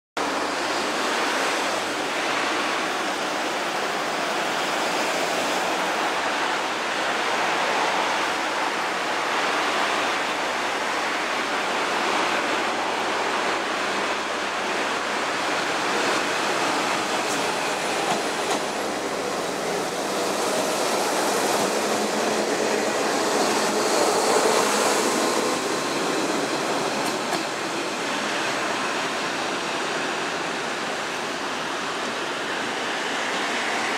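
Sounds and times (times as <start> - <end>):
diesel railcar engine running: 10.8 - 33.9.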